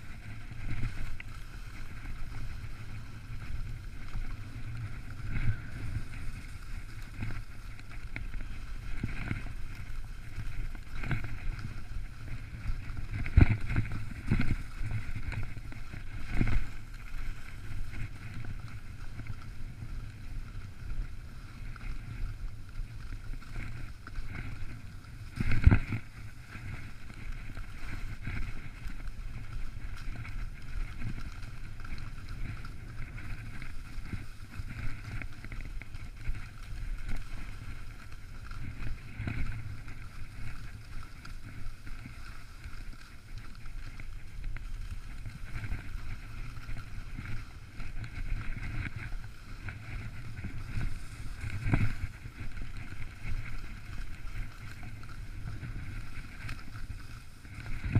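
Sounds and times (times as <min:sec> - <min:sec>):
wind buffeting microphone: 0:00.0 - 0:42.2, 0:42.9 - 0:57.9
skis hissing on snow: 0:50.6 - 0:51.7.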